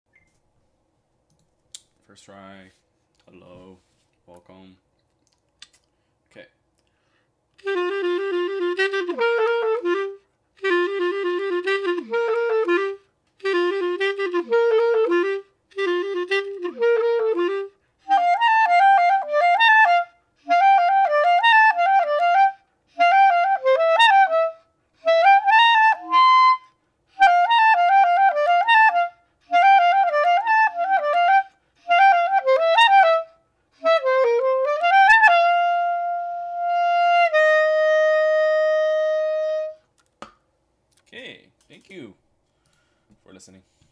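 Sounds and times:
solo clarinet: 7.6s - 39.9s.

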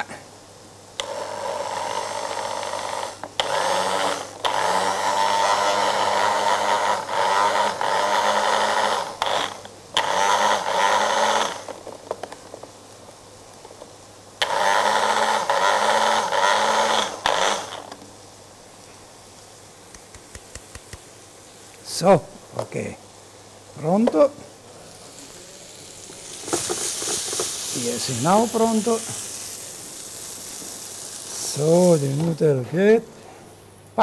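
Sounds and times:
electric mini chopper whirring: 1.0s - 11.8s, 14.4s - 18.0s, 24.2s - 32.4s.

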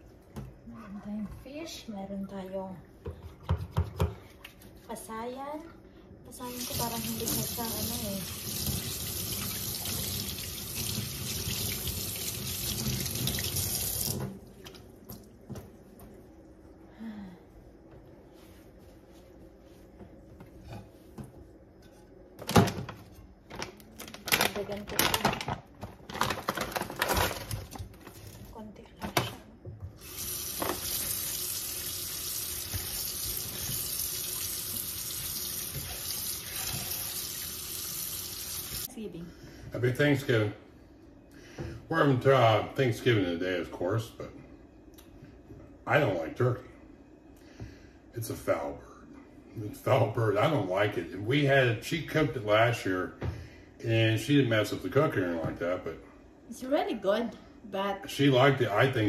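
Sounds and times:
faucet running into metal sink: 6.5s - 14.4s, 30.0s - 38.9s.

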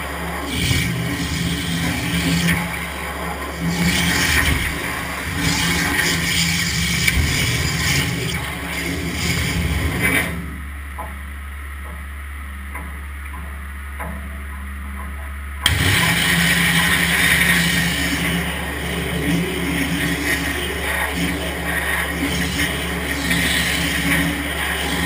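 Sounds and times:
waterjet cutter hissing: 0.0s - 10.5s, 15.7s - 25.0s
machine low hum: 0.0s - 25.0s.

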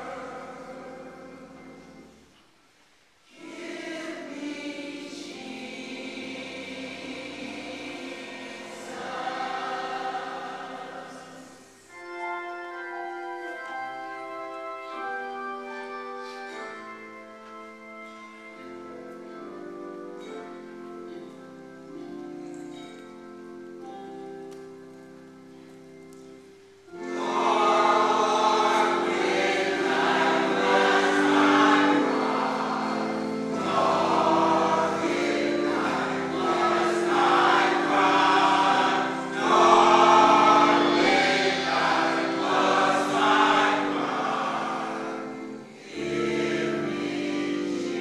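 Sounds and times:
large choir singing: 0.0s - 2.2s, 3.3s - 12.0s, 26.9s - 48.0s
held instrumental chords: 3.3s - 48.0s.

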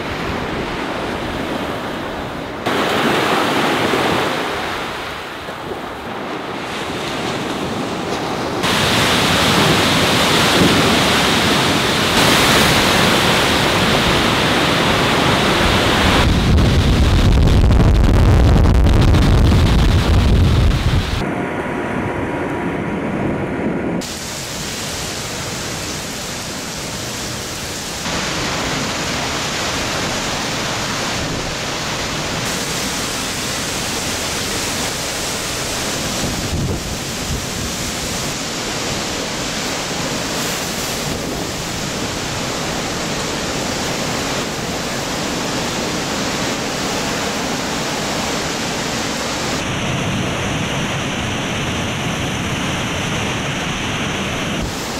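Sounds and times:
hurricane wind: 0.0s - 54.9s
heavy driving rain: 8.5s - 21.2s, 24.0s - 54.9s.

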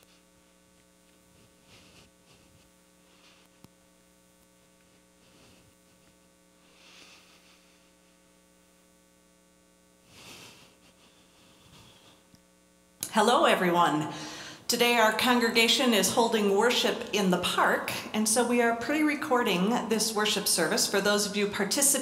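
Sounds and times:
faint soft rustles: 0.0s - 3.8s, 4.7s - 8.3s
electrical mains hum: 0.0s - 22.0s.

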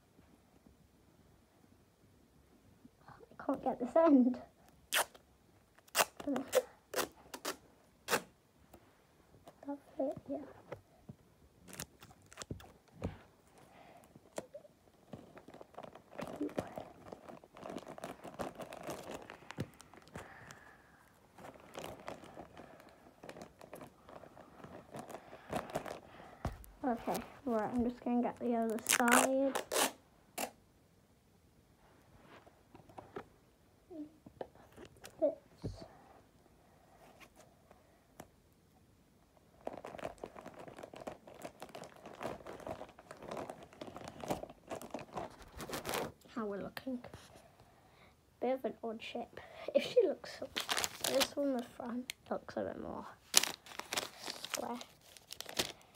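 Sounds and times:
wrapping paper crinkling: 14.3s - 20.7s, 21.3s - 30.0s, 39.5s - 46.2s, 50.3s - 52.1s, 53.1s - 55.9s.

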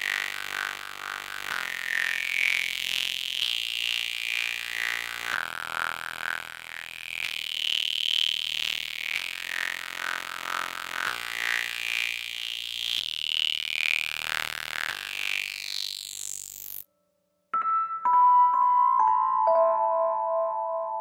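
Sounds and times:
synthesizer chords: 17.6s - 21.0s.

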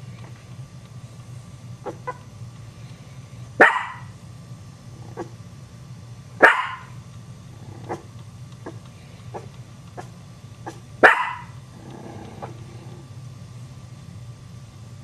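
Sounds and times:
dog yipping: 1.8s - 2.2s, 3.6s - 4.1s, 5.1s - 5.4s, 6.4s - 6.9s, 10.7s - 11.6s
small dog barking: 1.8s - 2.3s, 3.6s - 4.2s, 5.0s - 5.4s, 6.4s - 7.0s, 7.7s - 11.6s.

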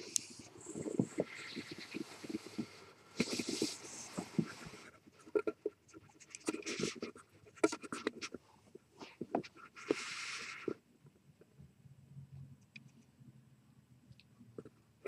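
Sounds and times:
cat sniffing: 0.0s - 10.8s
scratchy rustling: 0.0s - 10.8s.

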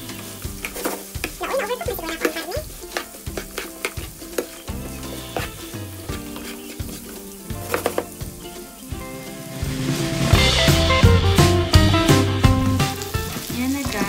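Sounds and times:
food sizzling in frying pan: 0.0s - 14.0s
spoon scraping and knocking pan: 0.1s - 8.5s.

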